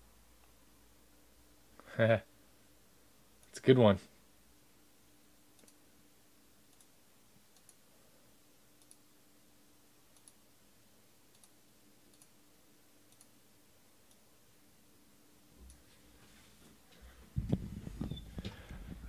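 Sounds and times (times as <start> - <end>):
faint low hum: 0.0 - 19.0
small sharp clicks: 5.6 - 5.8, 6.7 - 6.9, 7.5 - 7.8, 8.8 - 9.0, 10.1 - 10.4, 11.3 - 12.3, 13.1 - 13.3.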